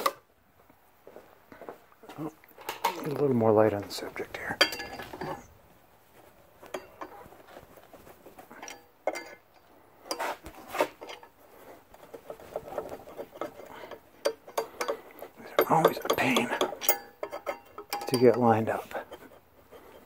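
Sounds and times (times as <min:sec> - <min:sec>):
metal clinks and scrapes: 0:03.9 - 0:05.5, 0:06.6 - 0:20.0.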